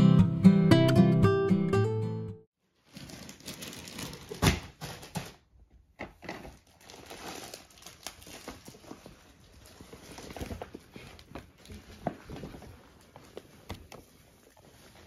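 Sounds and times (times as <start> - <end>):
paper crinkling: 2.8 - 5.4, 6.4 - 15.0.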